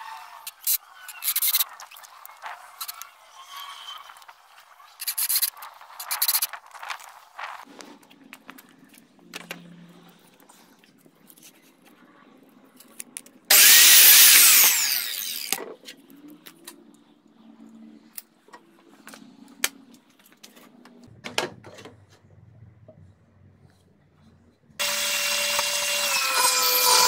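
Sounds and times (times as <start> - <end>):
miter saw cutting wood: 13.5 - 15.6, 24.8 - 27.0.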